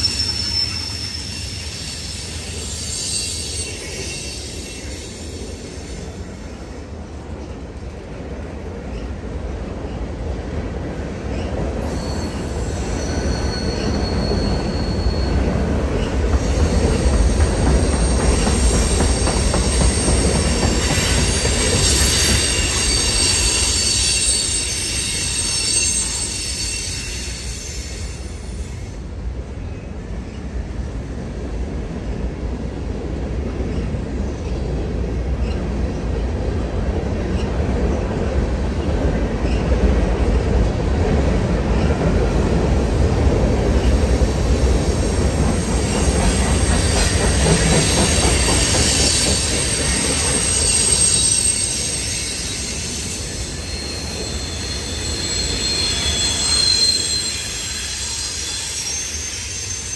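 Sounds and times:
freight train rumble: 0.0 - 59.9
wheel flanges squealing: 11.4 - 28.0, 45.0 - 59.9.

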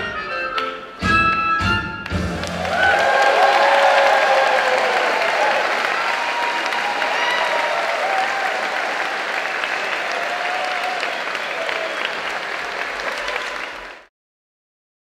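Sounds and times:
audience applauding: 2.1 - 14.1.

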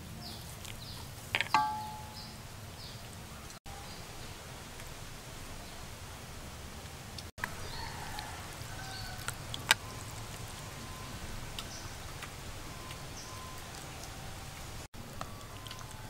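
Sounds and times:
ladle knocking bowl: 1.6 - 2.2.

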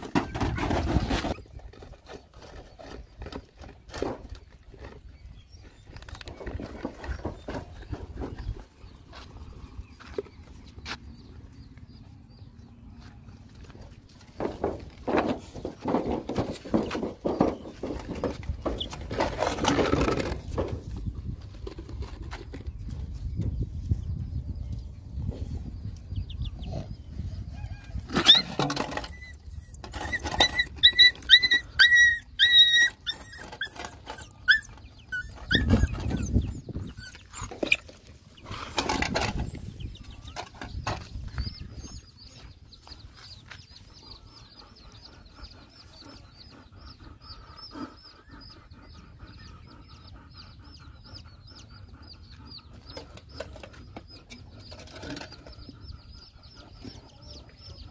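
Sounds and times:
puppies whimpering and yelping: 26.2 - 40.6, 43.9 - 57.9.

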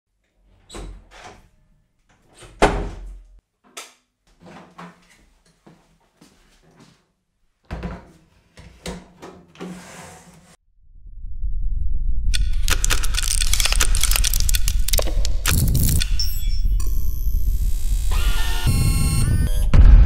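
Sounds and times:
short scrape: 9.6 - 10.6.

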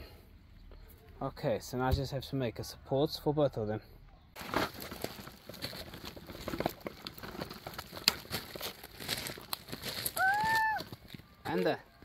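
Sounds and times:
plastic bag crinkling: 4.4 - 10.3.

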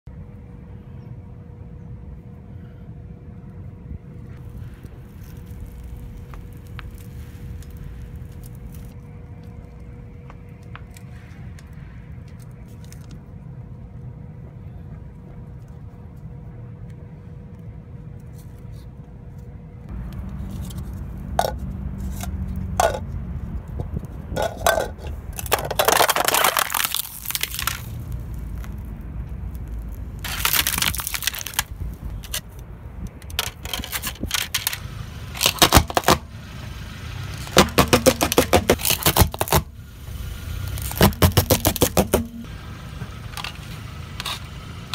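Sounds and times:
plastic cups crushed under tyre: 24.3 - 28.7, 30.2 - 32.4, 33.3 - 36.3, 37.3 - 39.7, 40.7 - 42.5.

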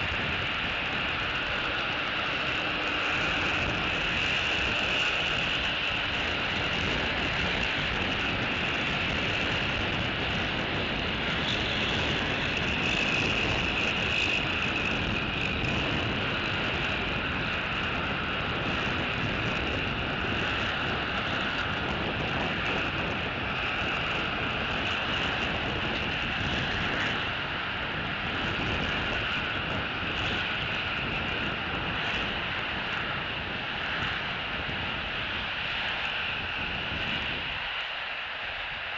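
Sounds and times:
constant high-pitched tone: 0.0 - 38.9.

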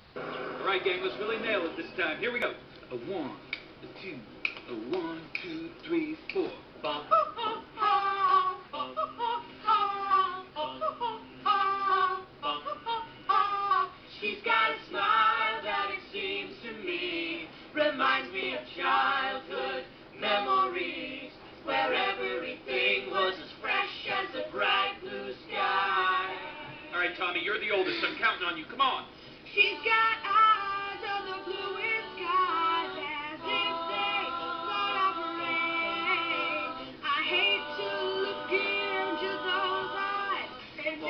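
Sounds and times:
girls singing together: 6.8 - 27.0, 29.5 - 41.0.

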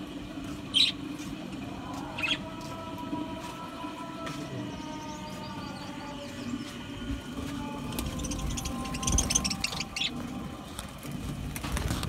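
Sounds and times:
budgerigars chirping: 8.1 - 10.1.

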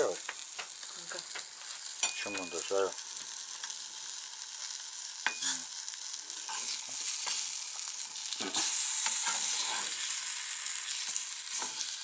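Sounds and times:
fish sizzling in oil: 0.0 - 12.0
spatula scraping and tapping pan: 5.2 - 5.6, 6.4 - 7.5.

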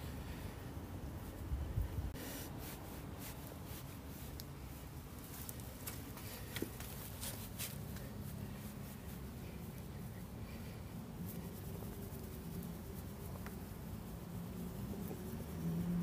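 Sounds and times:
hand stroking cat fur: 2.2 - 16.0.

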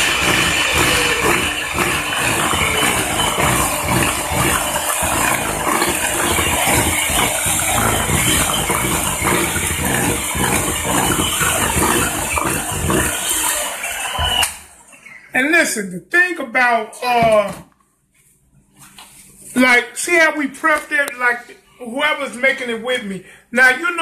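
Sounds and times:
electric mixer churning batter: 0.0 - 14.4.

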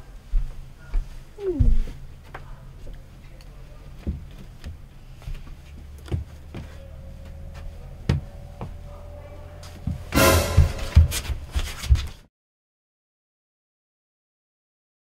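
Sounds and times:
low hum: 0.0 - 11.6.

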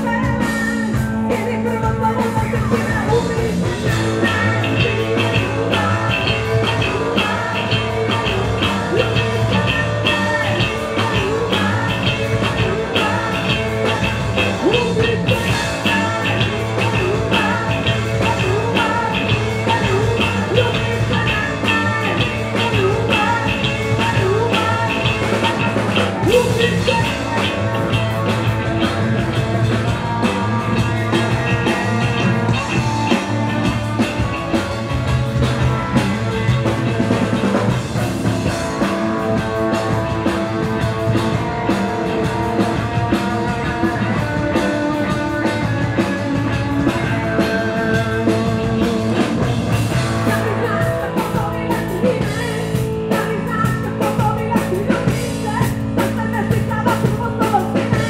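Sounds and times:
bass guitar: 0.0 - 58.0
drum kit: 0.0 - 58.0
electric guitar: 0.0 - 58.0
person singing lead vocal: 0.0 - 58.0.

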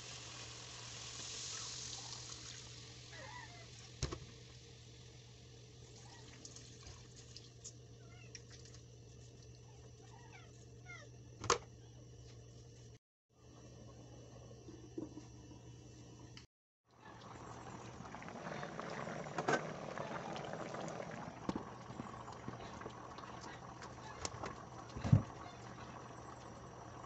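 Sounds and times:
liquid pouring and dripping: 5.9 - 7.7.

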